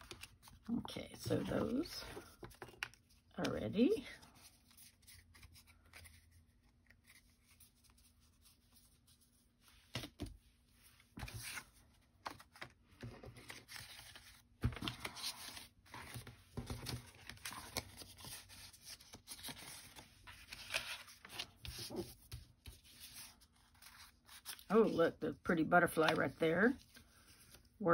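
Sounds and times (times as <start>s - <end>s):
paper rustling and sliding: 9.7s - 25.0s.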